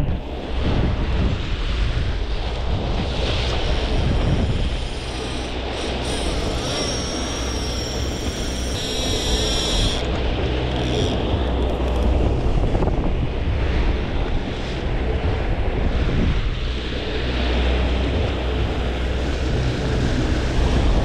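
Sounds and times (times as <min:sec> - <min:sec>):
churning boat wake: 0:00.0 - 0:21.0
wind buffeting microphone: 0:00.0 - 0:21.0
outboard motor running: 0:02.4 - 0:13.0.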